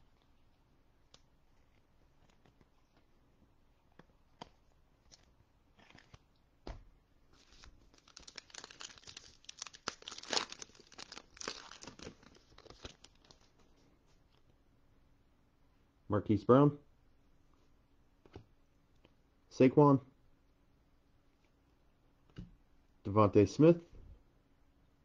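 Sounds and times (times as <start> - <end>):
foil wrapper tearing and crinkling: 7.4 - 13.5.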